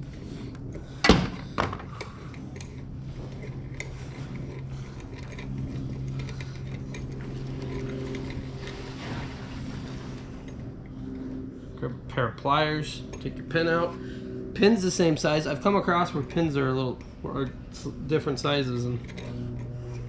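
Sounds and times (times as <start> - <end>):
steady low hum: 0.0 - 20.0
tools clinking: 0.6 - 9.1, 18.6 - 20.0
metal parts clanking: 1.0 - 9.2, 18.6 - 20.0.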